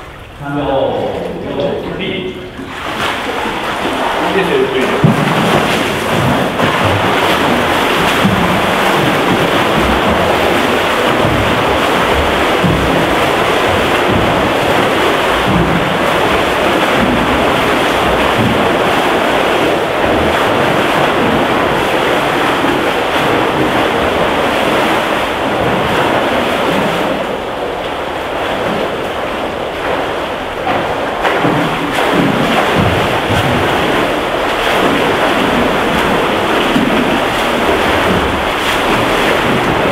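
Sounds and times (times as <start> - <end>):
pool water churning: 0.0 - 39.9
swimmers splashing: 0.0 - 39.9.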